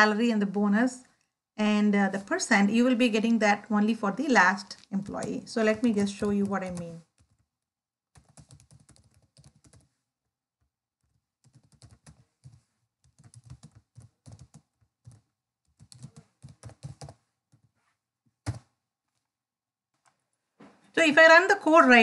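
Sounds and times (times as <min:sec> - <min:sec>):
keyboard typing: 0:04.7 - 0:07.5, 0:08.1 - 0:10.0, 0:11.0 - 0:17.8, 0:18.4 - 0:18.8.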